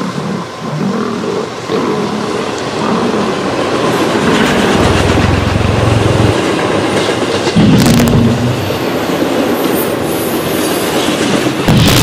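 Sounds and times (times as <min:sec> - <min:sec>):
deep train rumble: 0:00.0 - 0:12.0
train wheels on rails: 0:00.0 - 0:12.0.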